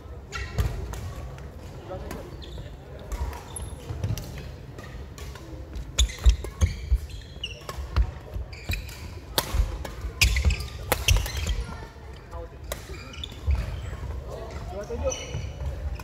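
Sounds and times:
shoe squeaks: 0:02.2 - 0:02.8, 0:06.0 - 0:09.2, 0:10.2 - 0:11.9, 0:12.9 - 0:14.0, 0:14.8 - 0:16.0
racket hitting shuttlecock: 0:08.8 - 0:11.6.

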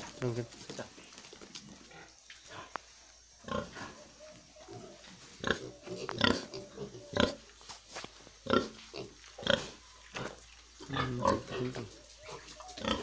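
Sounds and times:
pigs grunting: 0:03.4 - 0:07.5, 0:08.4 - 0:13.0.

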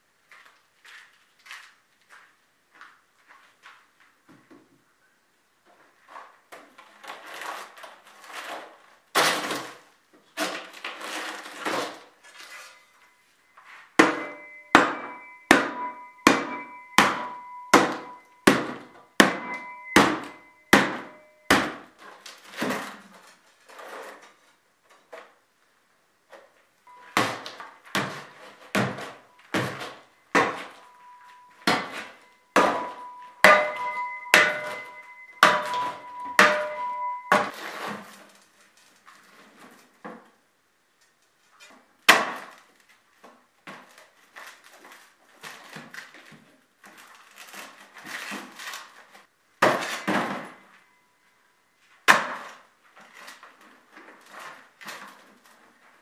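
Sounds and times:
hammer strikes ringing: 0:14.0 - 0:21.8, 0:26.9 - 0:37.5.

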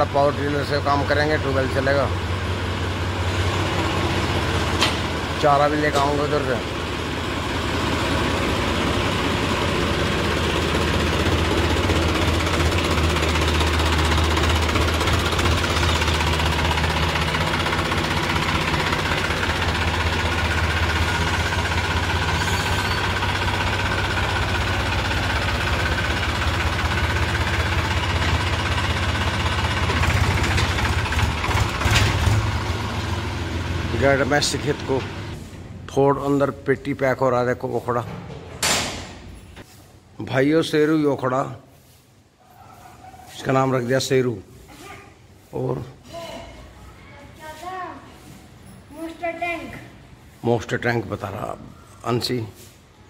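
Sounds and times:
diesel tractor engine running: 0:00.0 - 0:36.3.

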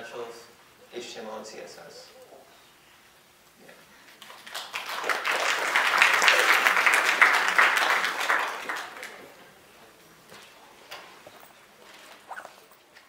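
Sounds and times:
audience applauding: 0:04.2 - 0:09.6.

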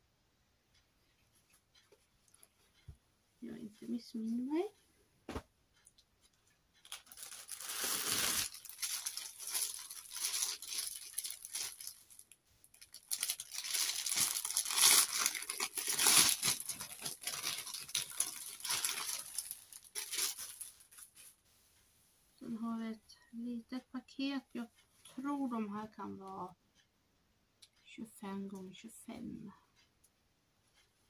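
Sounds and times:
plastic bag crinkling: 0:06.8 - 0:21.4.

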